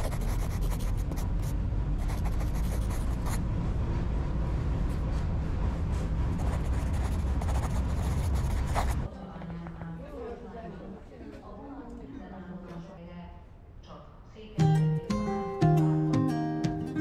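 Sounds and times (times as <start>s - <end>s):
tram rumbling: 1.2s - 10.6s.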